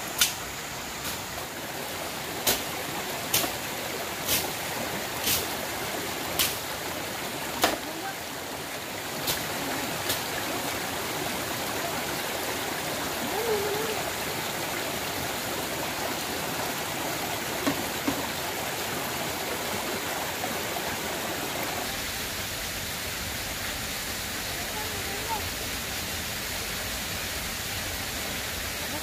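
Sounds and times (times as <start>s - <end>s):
running water rushing: 0.0s - 29.0s.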